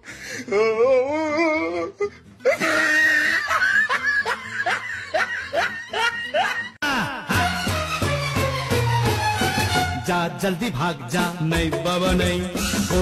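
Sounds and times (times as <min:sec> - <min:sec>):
person laughing: 0:02.4 - 0:07.6.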